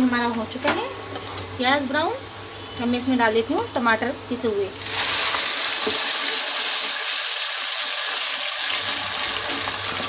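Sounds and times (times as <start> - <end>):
tomato puree sizzling in hot oil: 4.8 - 10.0.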